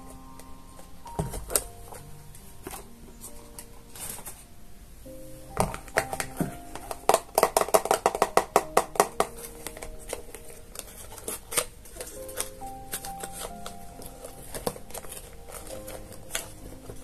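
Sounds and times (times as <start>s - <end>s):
fingernails tapping on cardboard: 5.6s - 9.4s.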